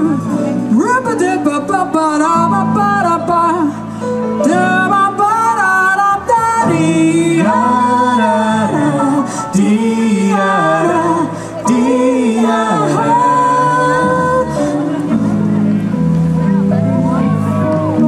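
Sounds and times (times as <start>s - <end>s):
woman singing with vibrato: 0.0s - 3.8s, 4.4s - 15.0s
band playing jazzy pop: 0.0s - 18.0s.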